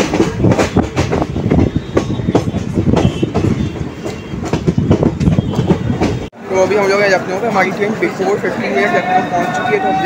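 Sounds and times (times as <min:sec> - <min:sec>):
train wheels clattering over rail joints: 0:00.0 - 0:06.3
heavy train rumble: 0:00.0 - 0:10.0.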